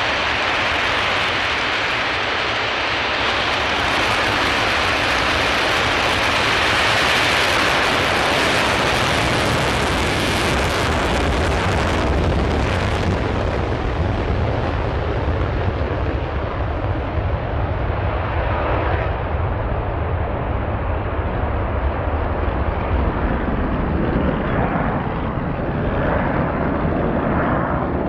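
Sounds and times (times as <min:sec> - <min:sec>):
jet engines at full afterburner: 0:00.0 - 0:28.0.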